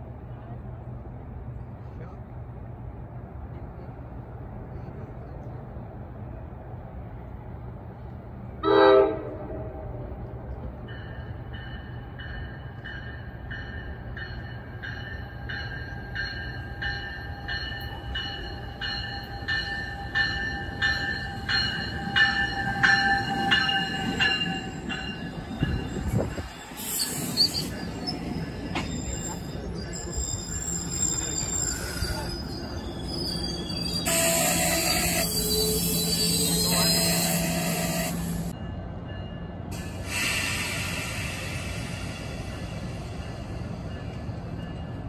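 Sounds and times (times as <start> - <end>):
train rumble: 0.0 - 45.0
train horn blast: 8.6 - 9.9, 34.1 - 38.4
train bell ringing: 10.8 - 40.2, 40.9 - 45.0.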